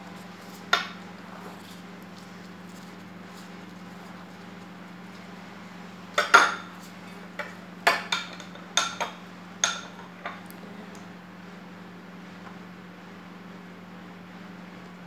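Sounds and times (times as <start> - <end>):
utensils and dishes clinking: 6.2 - 6.8.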